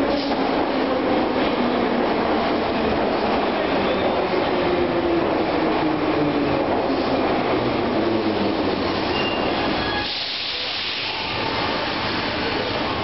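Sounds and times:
metro train rumble: 0:00.0 - 0:13.0
sharp hiss of air: 0:08.9 - 0:12.1.

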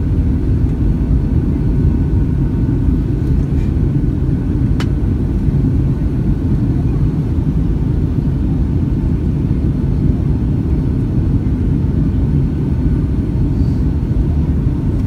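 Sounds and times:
airliner engines and airflow in cabin: 0:00.0 - 0:15.0.

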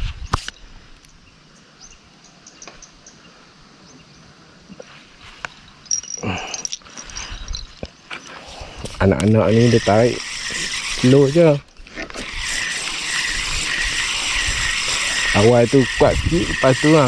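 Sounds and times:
insects chirping: 0:00.1 - 0:17.0
birds chirping: 0:00.2 - 0:11.8.

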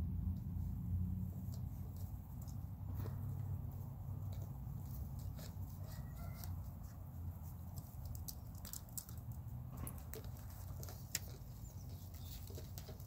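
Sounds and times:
low steady rumble: 0:00.0 - 0:13.0
puppy paws clicking on plastic: 0:01.4 - 0:03.6, 0:04.2 - 0:13.0.

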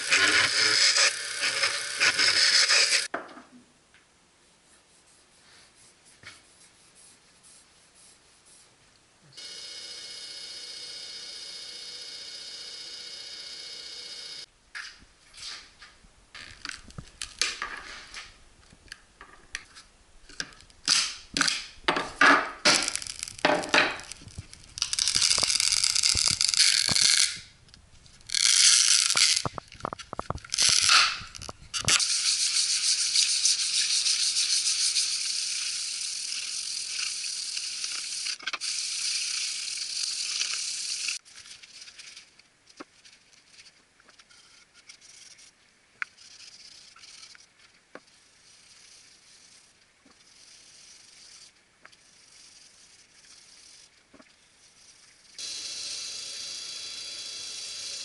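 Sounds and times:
sanding block rasping on wood: 0:32.0 - 0:35.6.

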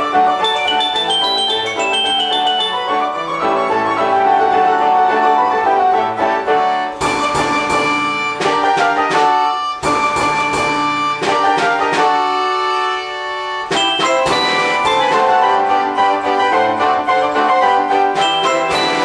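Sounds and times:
sharp struck accents: 0:00.4 - 0:03.1
orchestrion playing a tune: 0:00.4 - 0:03.8.

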